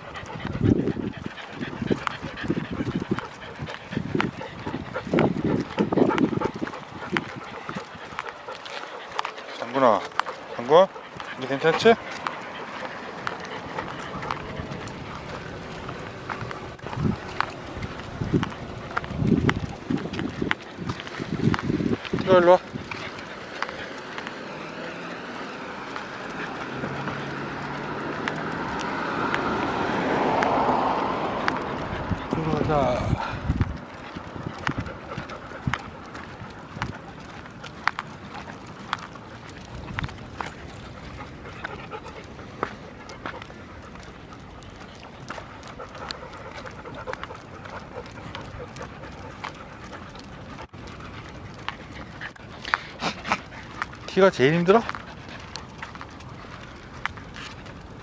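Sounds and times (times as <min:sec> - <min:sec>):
dogs panting: 0:00.0 - 0:58.0
car driving past: 0:23.9 - 0:33.4.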